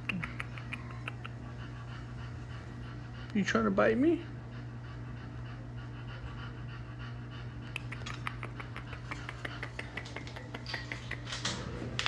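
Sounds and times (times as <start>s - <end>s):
small clicks and smacks: 0.0s - 1.4s, 7.6s - 12.0s.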